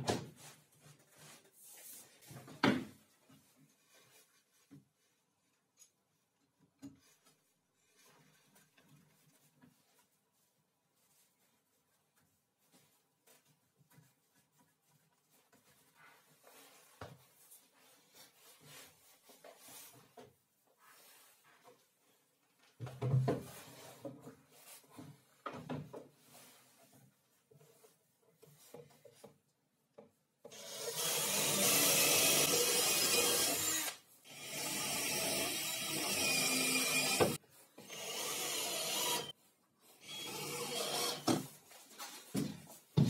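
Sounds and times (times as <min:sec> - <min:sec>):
cordless drill boring into wood: 0:30.5 - 0:39.3, 0:40.0 - 0:41.3.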